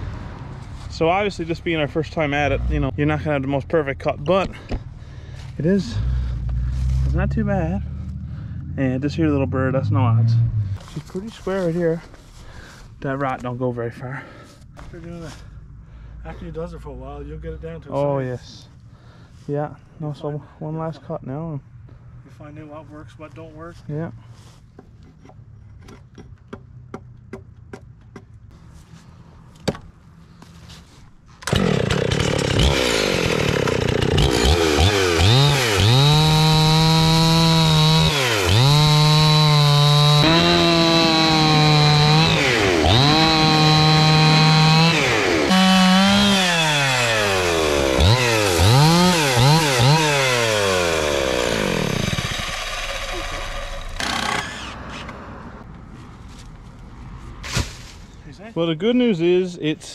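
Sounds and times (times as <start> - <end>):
chainsaw ripping a log: 31.4 - 55.1.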